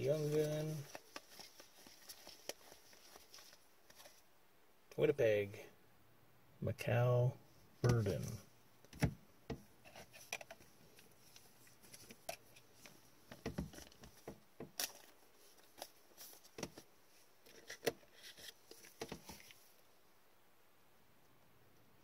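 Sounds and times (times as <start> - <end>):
gloved hands rustling and tapping: 0.0 - 4.3, 7.8 - 19.8
card sliding into plastic sleeve: 17.4 - 19.6.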